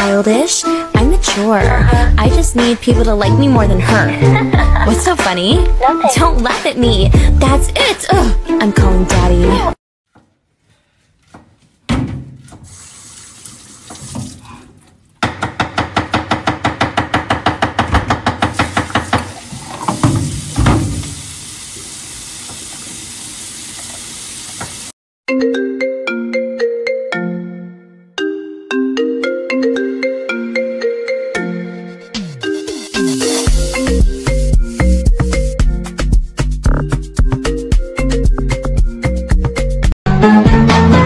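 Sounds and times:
tap running into sink: 18.4 - 23.0, 23.7 - 24.9
phone ringtone marimba tune: 25.3 - 35.0.

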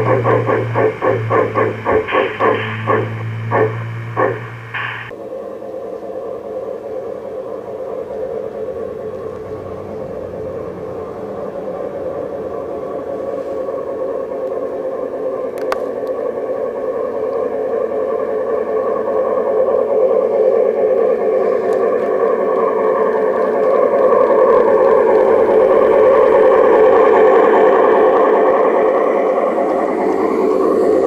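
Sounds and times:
model train motors whirring: 0.0 - 5.1, 5.7 - 31.0
wheels running on rails: 0.0 - 5.1, 6.2 - 31.0.

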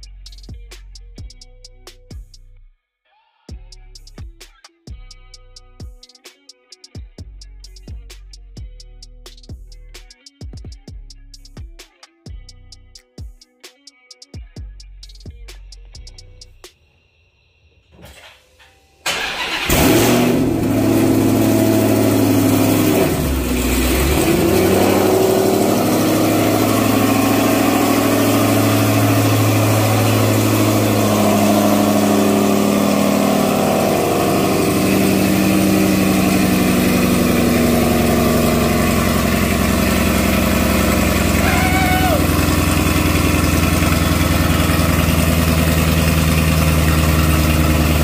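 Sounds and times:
car engine revving: 19.1 - 48.0
car engine idling loudly: 19.6 - 48.0.

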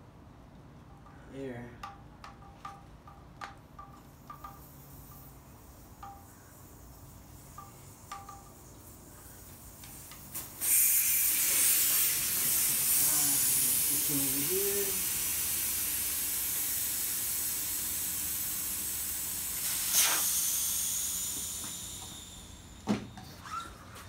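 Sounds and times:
air hissing out of tire: 6.6 - 23.7.

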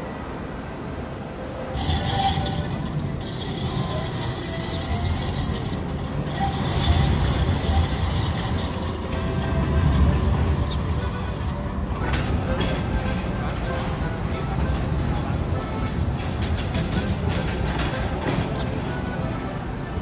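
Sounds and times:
crowd noise: 0.0 - 20.0
indoor station ambience: 0.0 - 20.0
traffic hiss: 0.0 - 20.0
tram rumble: 0.0 - 20.0
mechanical clatter: 1.8 - 13.8.

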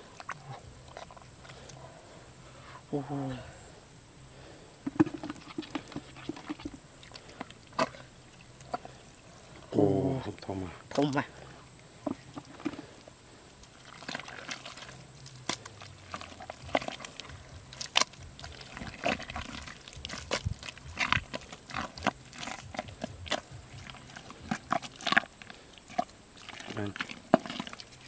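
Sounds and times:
hands squelching in wet mud: 11.0 - 28.0.

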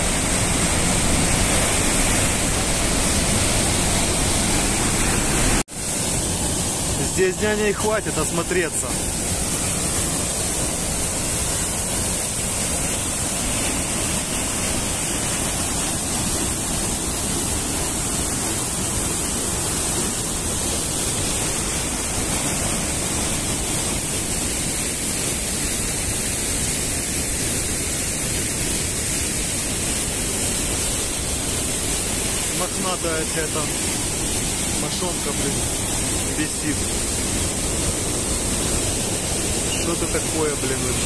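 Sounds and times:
waterfall rushing: 0.0 - 41.0.

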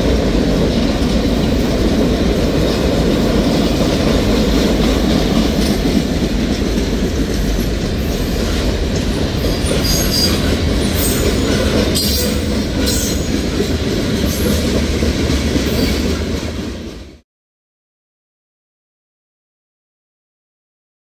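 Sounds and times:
train wheels rumbling on rail: 0.0 - 17.2
high wheel squeals: 9.5 - 13.3.

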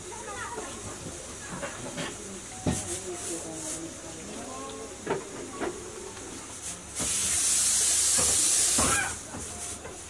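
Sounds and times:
loud steady hiss: 6.3 - 10.0.

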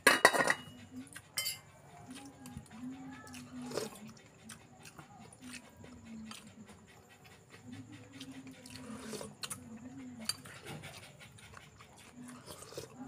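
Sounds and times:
spoons clinking on ceramic bowls: 0.0 - 0.8, 1.4 - 1.7.

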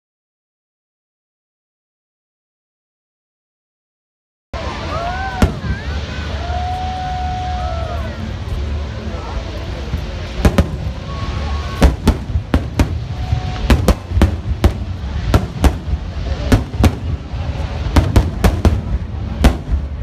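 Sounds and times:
continuous low rumble: 4.6 - 20.0
fireworks bangs: 5.0 - 6.4, 9.8 - 20.0.

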